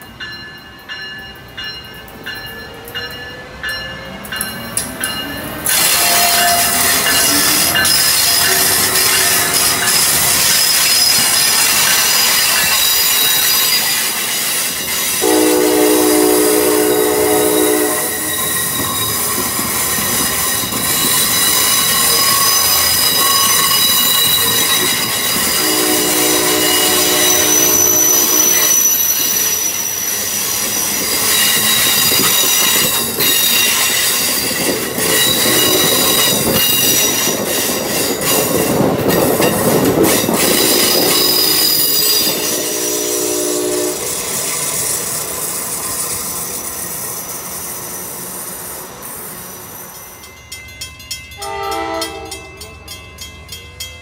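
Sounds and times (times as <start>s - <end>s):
train rumbling past: 0.0s - 54.0s
high-pitched wheel squeal: 5.7s - 38.4s, 40.4s - 44.9s
train horn blasts: 5.8s - 9.4s, 15.2s - 18.4s, 25.5s - 29.0s, 35.5s - 36.2s, 41.4s - 44.2s, 51.4s - 52.5s.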